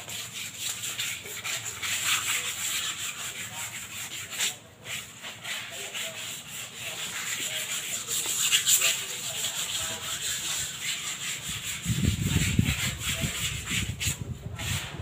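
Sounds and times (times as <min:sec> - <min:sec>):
scrubbing on cement pots: 0:00.0 - 0:15.0.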